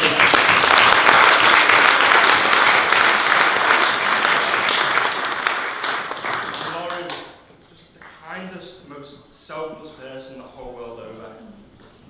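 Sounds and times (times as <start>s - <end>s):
crowd clapping: 0.0s - 7.4s.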